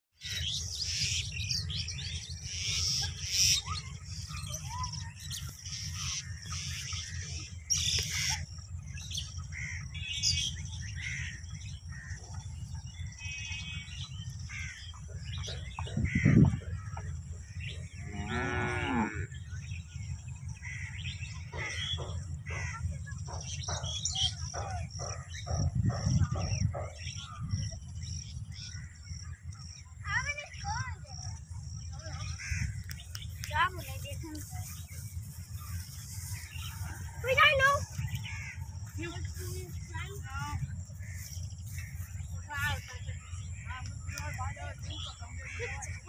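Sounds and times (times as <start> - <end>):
bird chirps: 0.1 - 46.0
steady low rumble: 0.2 - 46.0
cattle mooing: 18.0 - 19.3.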